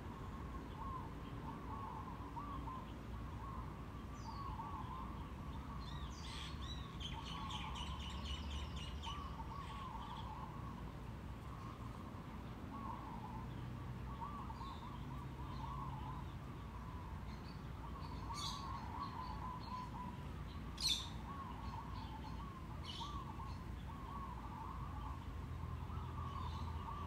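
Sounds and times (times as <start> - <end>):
bird warbling call: 0.1 - 10.8, 14.1 - 27.0.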